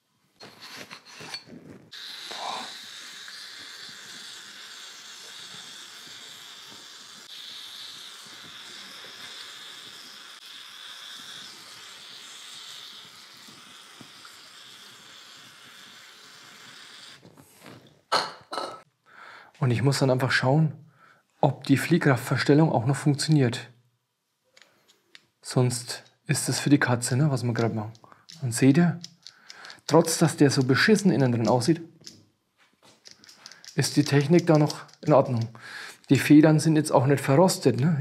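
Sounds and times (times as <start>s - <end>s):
aerosol spray can hissing: 1.9s - 17.3s, 33.1s - 36.2s.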